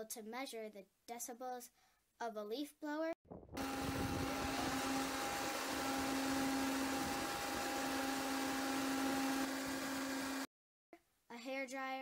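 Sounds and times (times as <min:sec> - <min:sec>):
leaf blower running: 0:03.6 - 0:10.5.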